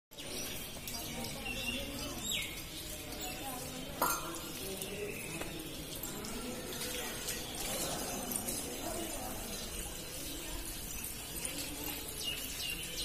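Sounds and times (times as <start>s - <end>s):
faint distant voices: 0.1s - 13.0s.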